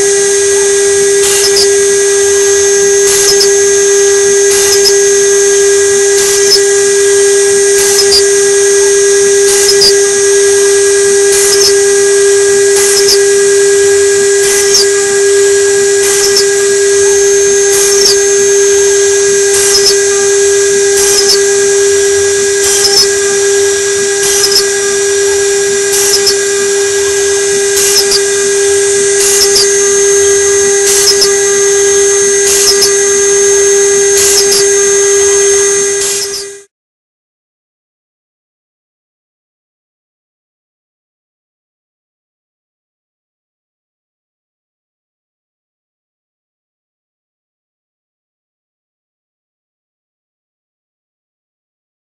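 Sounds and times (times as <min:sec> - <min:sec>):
bit cutting hiss: 0:00.0 - 0:36.7
router spindle high whine: 0:00.0 - 0:36.7.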